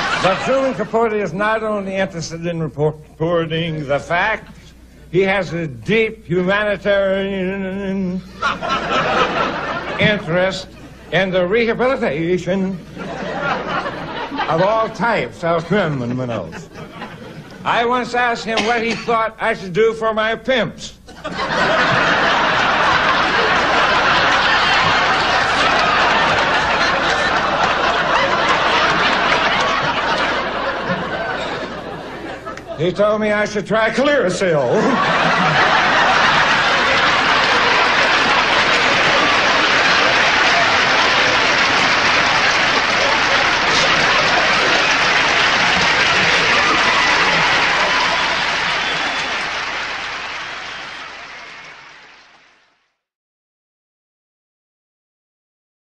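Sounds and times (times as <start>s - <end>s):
audience laughing: 0.0s - 1.8s, 7.2s - 19.0s, 21.1s - 33.2s, 34.0s - 52.4s.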